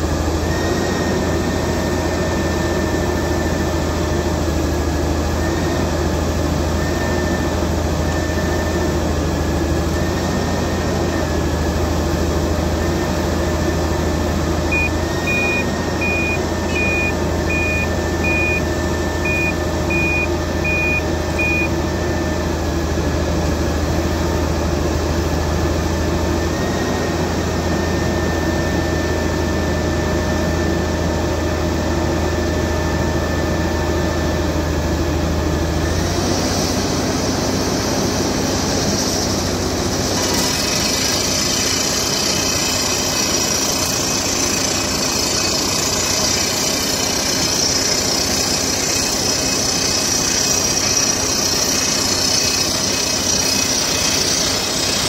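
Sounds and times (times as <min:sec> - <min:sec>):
drill rig running: 0:00.0 - 0:55.0
loud hiss of drilling: 0:36.2 - 0:55.0.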